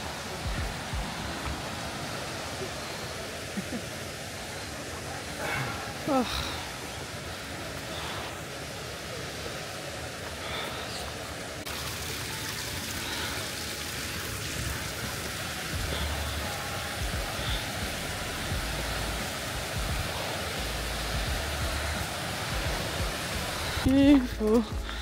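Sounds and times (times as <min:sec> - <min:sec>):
mountain stream and waterfalls rushing: 0:00.0 - 0:25.0.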